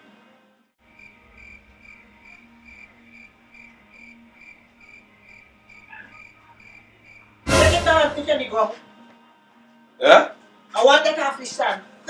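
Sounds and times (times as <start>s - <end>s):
cricket chirping faintly: 0.9s - 7.4s.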